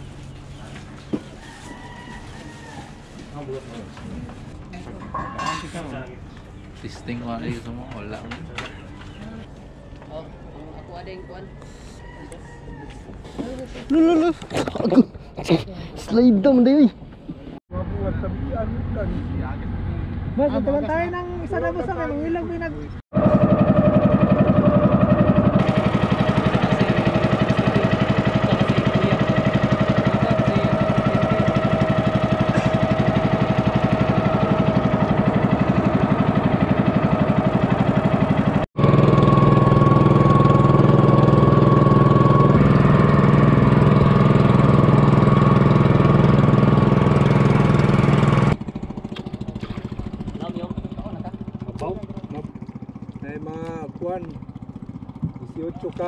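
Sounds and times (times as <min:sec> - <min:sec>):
boat engine running: 0:17.8 - 0:56.0.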